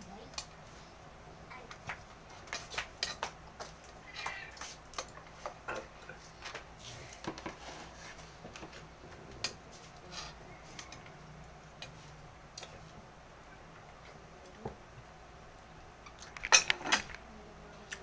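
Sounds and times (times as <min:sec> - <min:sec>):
person eating: 0:03.8 - 0:07.3.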